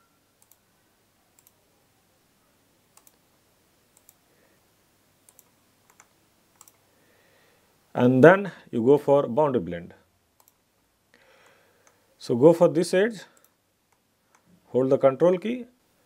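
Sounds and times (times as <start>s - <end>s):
low hiss: 0.0s - 16.0s
faint computer mouse clicks: 0.4s - 0.6s, 1.4s - 1.6s, 3.0s - 3.2s, 4.0s - 4.2s, 5.3s - 6.8s, 10.4s - 10.6s.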